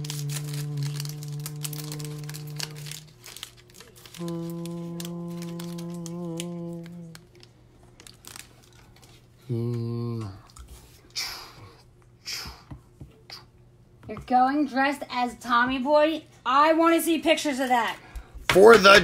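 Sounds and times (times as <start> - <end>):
long held notes: 0.0 - 7.5
foil wrapper crinkling and tearing: 0.0 - 9.3.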